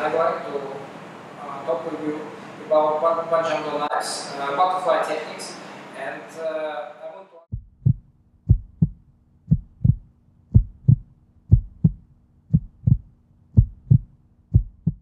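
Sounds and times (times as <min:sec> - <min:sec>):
heartbeat thuds: 0:07.5 - 0:15.0.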